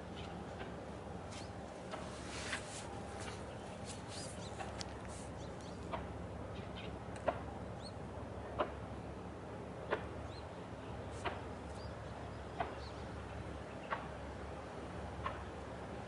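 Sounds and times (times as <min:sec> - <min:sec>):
small birds chirping: 0:03.1 - 0:07.0, 0:07.7 - 0:08.0, 0:10.2 - 0:14.0.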